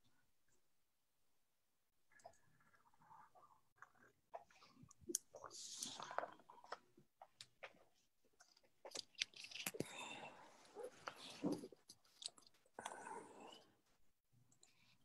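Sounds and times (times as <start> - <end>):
faint irregular clicks: 14.5 - 15.0.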